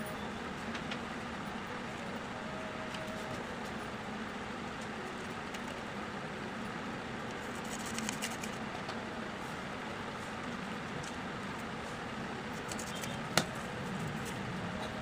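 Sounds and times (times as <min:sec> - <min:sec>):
steady background noise: 0:00.0 - 0:15.0
scissors cutting paper: 0:07.3 - 0:08.6, 0:12.5 - 0:13.2.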